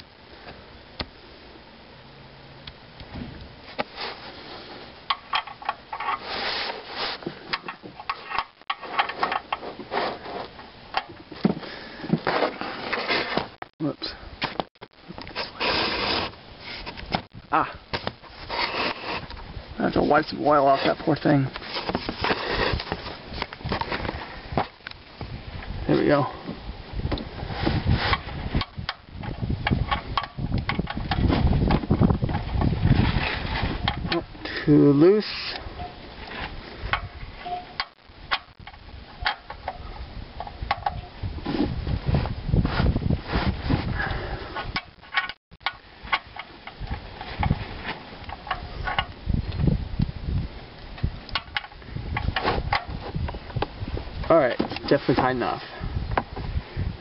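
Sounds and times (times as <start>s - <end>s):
steady low rumble: 16.3s - 18.5s.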